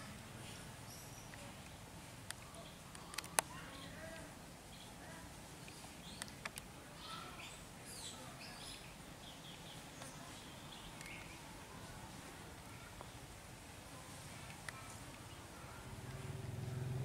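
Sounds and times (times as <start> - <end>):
faint outdoor ambience: 0.0 - 17.0
sharp clicks: 1.3 - 3.5.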